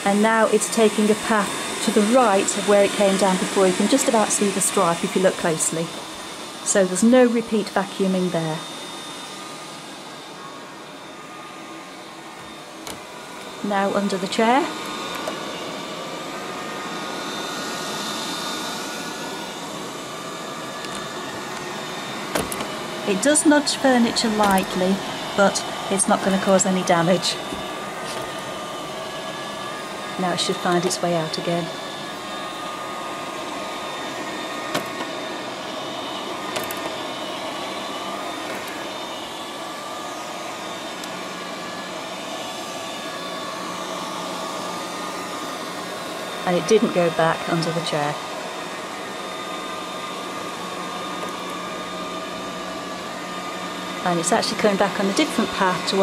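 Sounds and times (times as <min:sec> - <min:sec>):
robot vacuum cleaner whirring: 0:00.0 - 0:56.0
vacuum cleaner clicks: 0:22.3 - 0:22.8, 0:34.7 - 0:35.2, 0:36.5 - 0:37.0.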